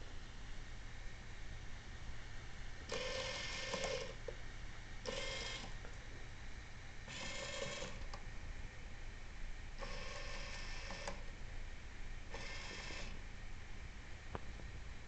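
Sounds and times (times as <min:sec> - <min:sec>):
small electric motor whirring: 0:02.9 - 0:04.2, 0:07.1 - 0:08.0, 0:09.8 - 0:11.2, 0:12.3 - 0:13.2.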